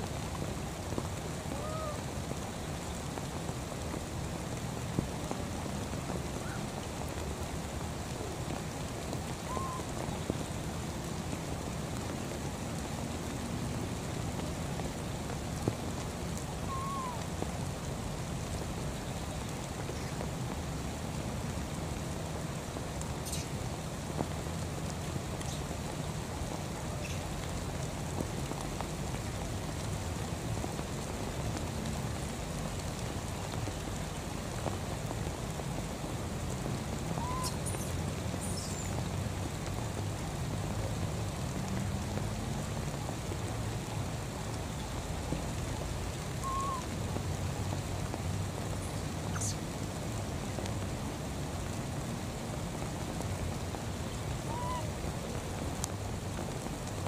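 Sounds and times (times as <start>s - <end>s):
rain pattering on water and grass: 0.0s - 57.0s.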